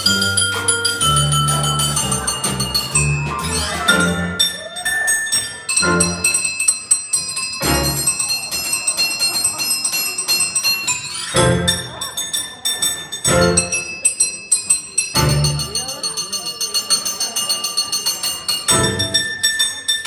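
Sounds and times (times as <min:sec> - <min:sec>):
upright bass notes: 0:00.0 - 0:04.4
vibraphone solo: 0:00.0 - 0:20.0.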